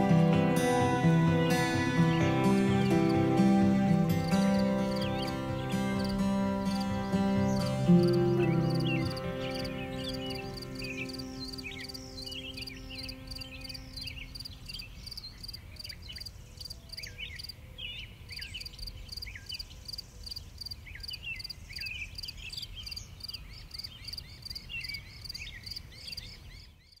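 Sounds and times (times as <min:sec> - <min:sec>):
music chord: 0:00.0 - 0:14.6
crickets chirping: 0:00.1 - 0:16.8.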